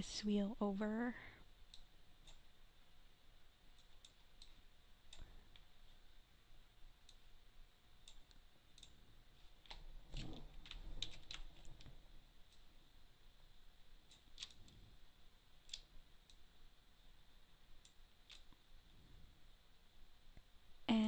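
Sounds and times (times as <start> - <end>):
computer mouse clicking: 1.6 - 2.5, 3.7 - 5.7, 8.0 - 9.0, 9.6 - 11.9, 14.1 - 14.8, 15.6 - 16.4, 17.8 - 18.6.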